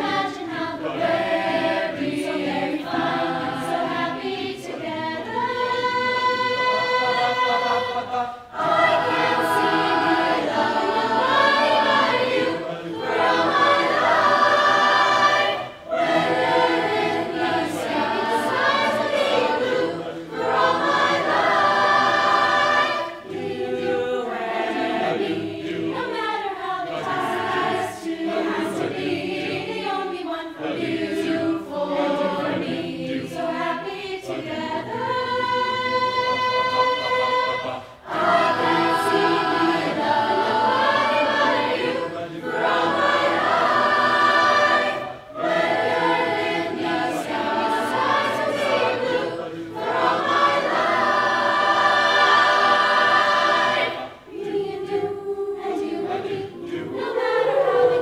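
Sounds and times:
mixed choir singing: 0.0 - 58.0
singers breathing: 37.7 - 38.0.

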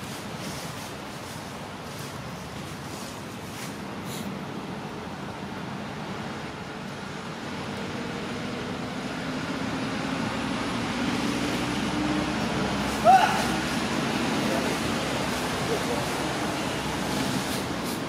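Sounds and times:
vehicle rushing hum: 4.2 - 18.0.

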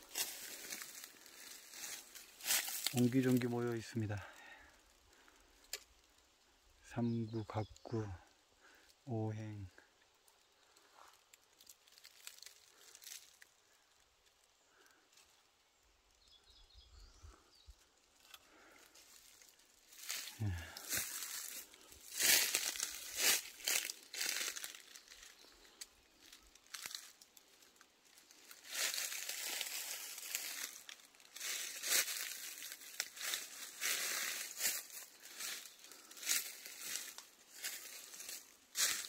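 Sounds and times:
footsteps through dry leaves: 0.0 - 4.2, 11.3 - 13.5, 18.8 - 39.0.

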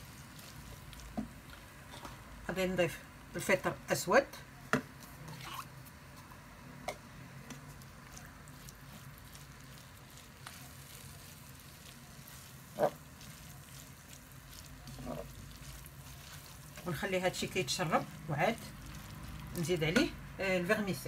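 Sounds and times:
wooden spoon stirring: 0.0 - 2.7, 7.4 - 21.0
filling sizzling in a pan: 0.0 - 4.2, 7.4 - 21.0.

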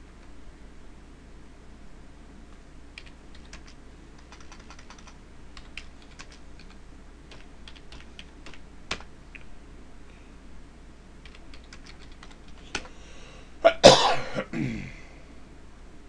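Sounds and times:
typing on computer keyboard: 3.0 - 9.1, 11.2 - 12.9.

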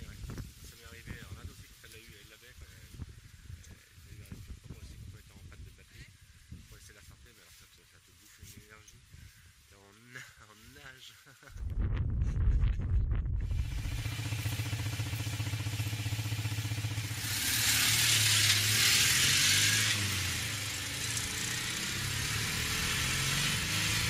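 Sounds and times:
rush of wind and road noise: 0.0 - 7.3, 11.5 - 24.0
car engine humming: 13.4 - 24.0.

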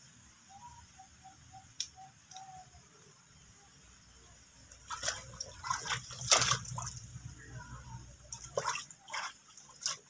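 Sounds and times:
water dripping: 4.6 - 7.3, 8.2 - 10.0
monkey splashing in water: 4.8 - 7.2, 8.3 - 10.0.

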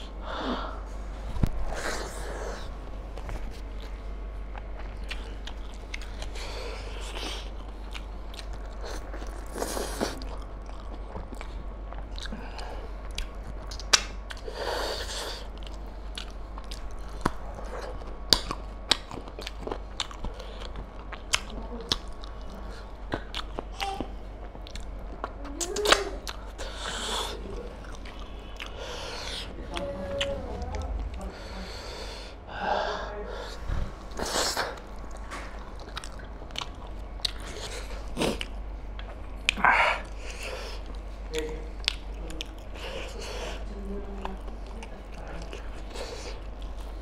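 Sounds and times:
breathy sounds: 0.0 - 2.8, 26.2 - 35.6, 39.5 - 41.8
close chewing and biting: 1.4 - 31.3, 34.1 - 47.0.

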